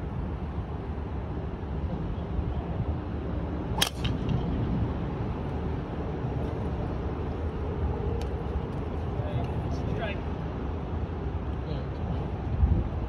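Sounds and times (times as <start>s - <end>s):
steady low rumble: 0.0s - 11.4s
golf club striking ball: 3.8s - 4.5s.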